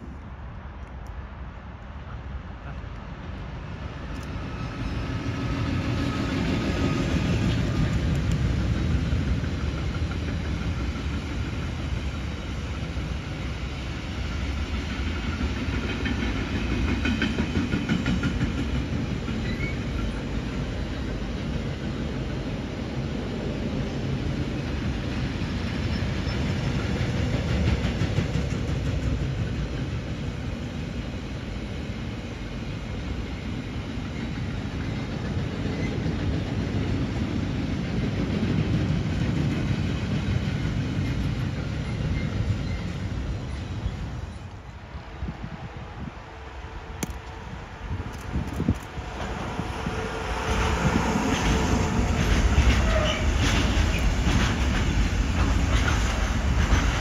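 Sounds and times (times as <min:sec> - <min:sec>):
freight train rumbling: 0:00.0 - 0:57.0.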